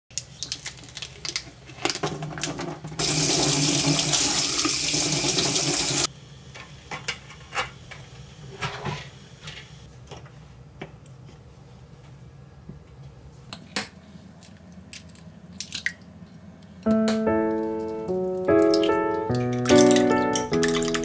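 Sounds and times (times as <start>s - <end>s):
plastic film crinkling: 0.2s - 2.5s
faucet running water into sink: 3.0s - 6.1s
water dripping: 17.8s - 21.0s.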